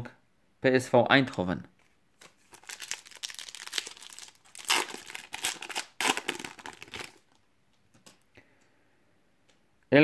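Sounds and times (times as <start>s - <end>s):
foil wrapper crinkling: 2.2s - 7.4s.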